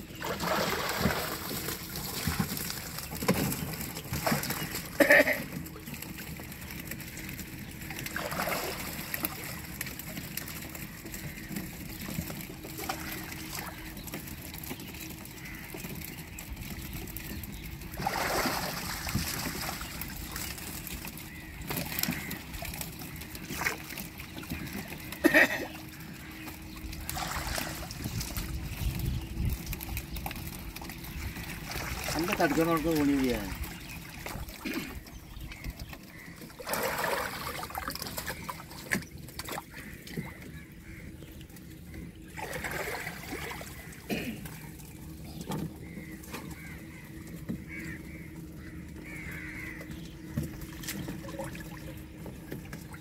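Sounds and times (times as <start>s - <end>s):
water sloshing and splashing: 0.0s - 53.0s
loud splashes: 0.2s - 2.8s, 18.0s - 20.5s, 27.0s - 28.3s, 36.6s - 38.8s, 42.4s - 44.6s.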